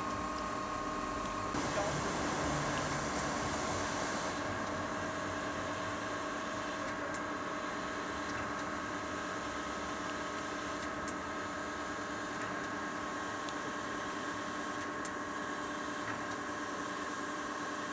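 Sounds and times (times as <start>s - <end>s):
steam locomotive hissing: 1.6s - 5.4s.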